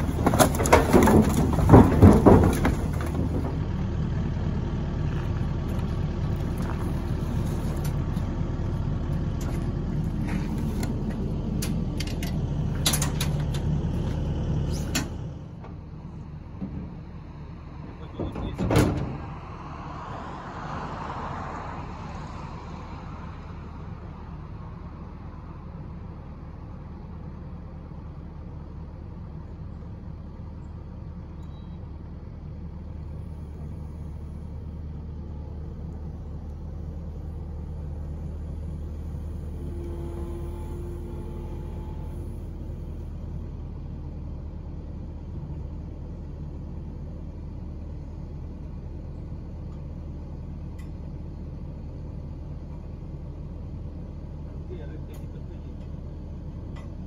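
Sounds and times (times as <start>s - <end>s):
diesel engine rumbling: 0.0s - 57.0s.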